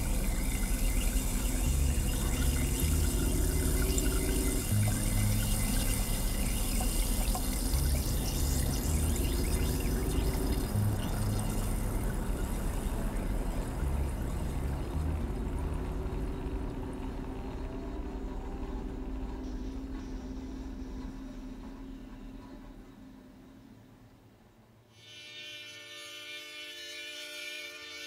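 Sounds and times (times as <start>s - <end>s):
water pouring and trickling: 0.0s - 17.9s.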